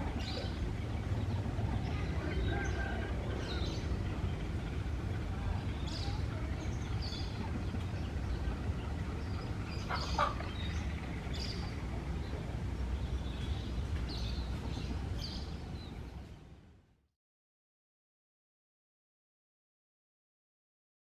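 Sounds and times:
birds chirping: 0.0s - 16.6s
distant diesel locomotive rumble: 0.0s - 16.9s.

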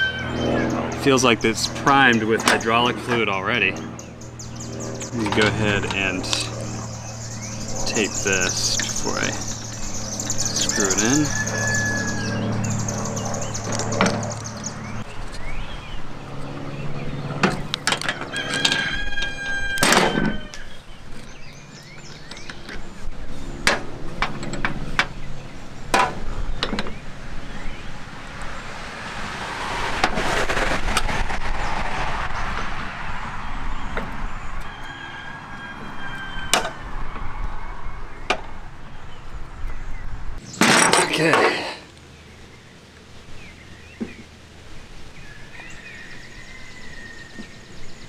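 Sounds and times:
bird calling: 2.1s - 16.0s.

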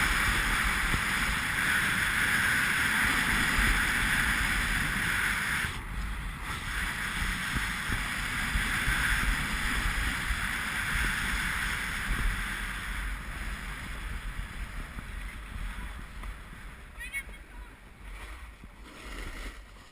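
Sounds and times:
wind on camera microphone: 0.0s - 19.9s.

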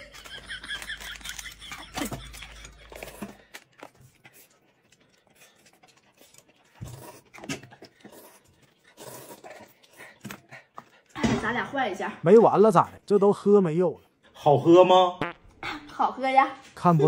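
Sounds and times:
sipping and chewing: 0.2s - 11.1s.

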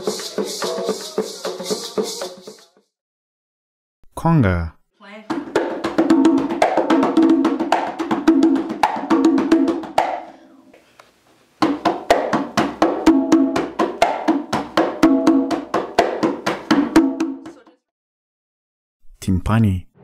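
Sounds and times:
conga drum hand strokes: 0.0s - 2.8s.

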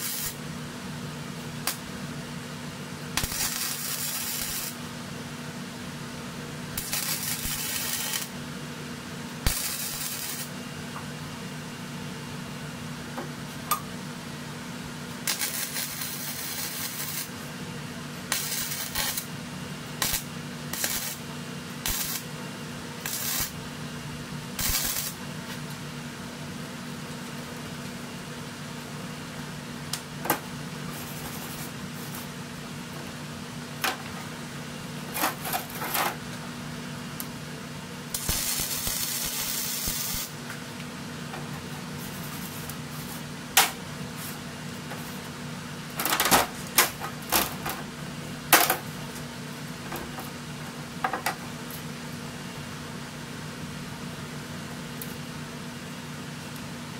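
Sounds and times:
welder arc hiss: 0.0s - 0.4s, 3.2s - 4.8s, 6.8s - 8.4s, 9.4s - 10.6s, 15.2s - 17.4s, 18.3s - 19.3s, 20.0s - 22.3s, 23.0s - 23.6s, 24.6s - 25.2s, 38.1s - 40.4s
steady low hum: 0.0s - 56.9s.

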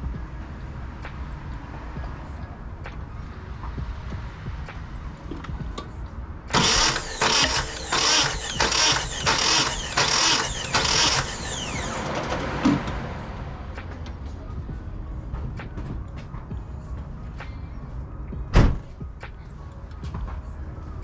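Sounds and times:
starter whine winding down: 6.5s - 12.5s
engine cranking on starter motor: 6.5s - 12.7s.

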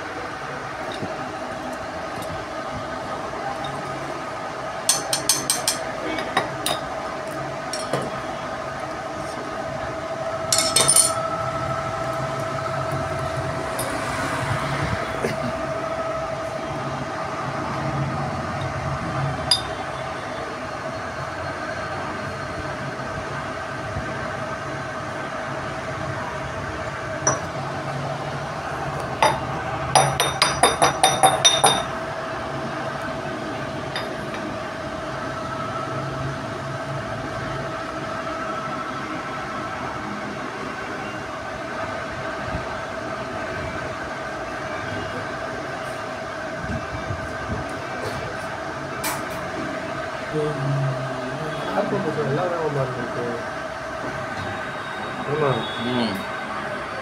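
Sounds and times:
steady background hum: 0.0s - 57.0s
metal parts clinking: 10.5s - 11.2s.

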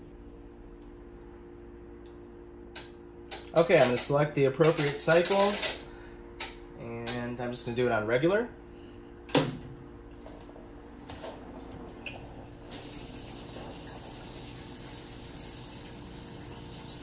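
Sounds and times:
water rushing into tub: 12.5s - 17.0s.

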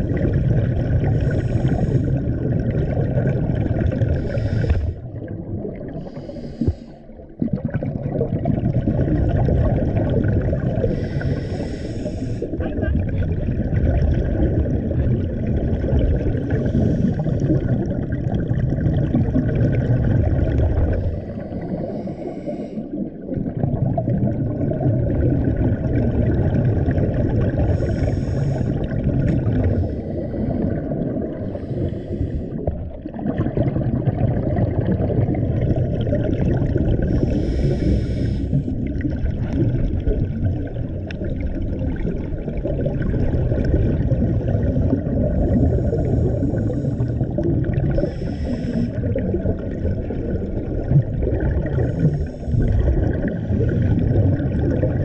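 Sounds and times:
underwater exhale bubbling: 0.0s - 55.0s
regulator inhalation hiss: 6.0s - 7.0s, 10.9s - 12.5s, 27.8s - 28.7s, 31.5s - 32.6s, 37.2s - 38.6s, 48.0s - 49.0s.

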